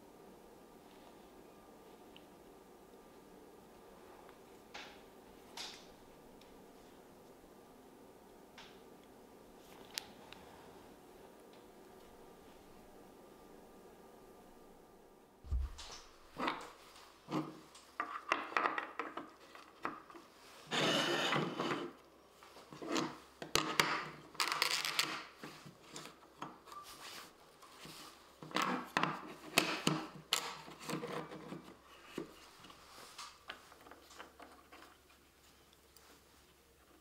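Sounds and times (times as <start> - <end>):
board scraping on bench: 20.6 - 22.0.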